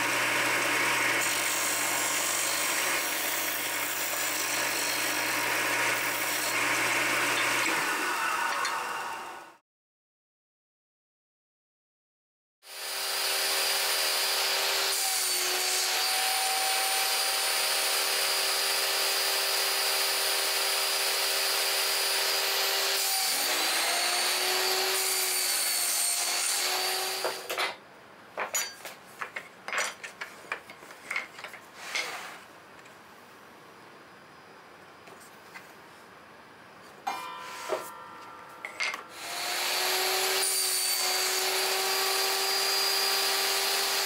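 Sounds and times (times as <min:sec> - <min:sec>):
table saw cutting wood: 0:00.0 - 0:09.6, 0:12.7 - 0:27.6, 0:37.1 - 0:44.0
metal square being handled: 0:28.4 - 0:32.4, 0:37.1 - 0:39.2.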